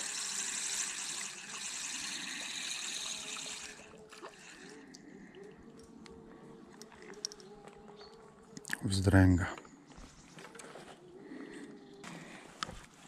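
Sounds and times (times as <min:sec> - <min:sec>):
fishing reel whirring: 0:00.0 - 0:05.0.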